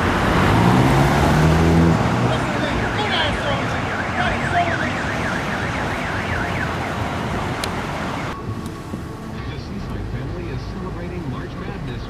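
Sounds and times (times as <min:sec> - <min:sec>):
street traffic noise: 0:00.0 - 0:12.0
police siren yelping: 0:02.3 - 0:09.0.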